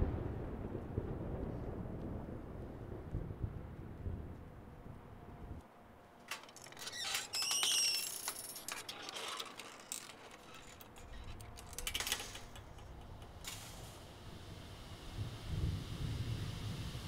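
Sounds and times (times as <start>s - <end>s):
metal gate latch clicks and rattles: 6.2s - 13.6s
gate hinge squealing: 6.3s - 13.4s.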